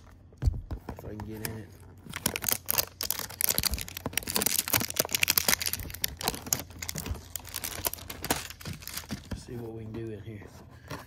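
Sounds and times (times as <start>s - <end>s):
cardboard box tearing and crackling: 2.0s - 9.4s.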